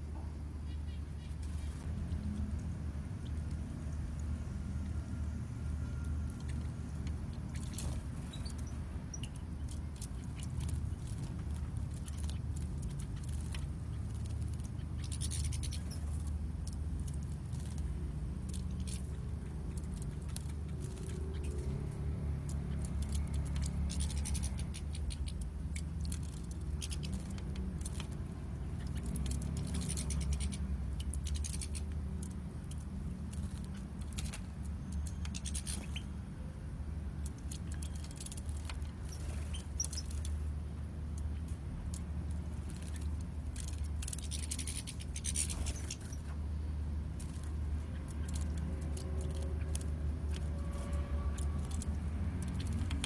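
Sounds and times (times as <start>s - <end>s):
steady low hum: 0.0s - 53.0s
wings fluttering: 5.9s - 36.2s, 37.2s - 46.5s, 47.1s - 53.0s
birds splashing in water: 6.2s - 36.2s.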